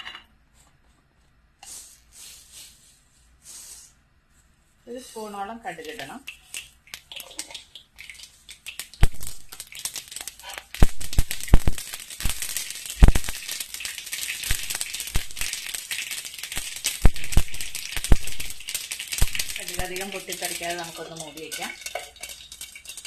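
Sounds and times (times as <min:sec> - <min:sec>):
oil sizzling: 0:04.9 - 0:23.0
mustard seeds popping: 0:05.7 - 0:23.0.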